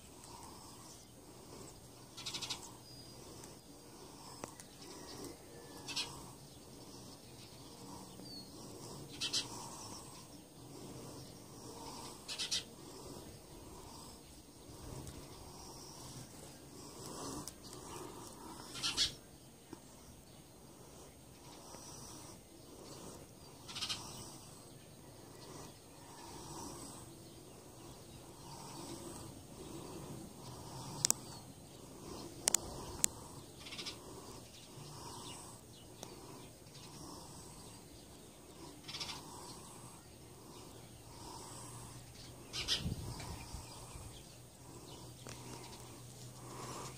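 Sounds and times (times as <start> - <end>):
animal calling softly: 9.1 - 10.0, 11.7 - 13.1, 18.5 - 19.2, 23.6 - 24.4, 38.6 - 39.8.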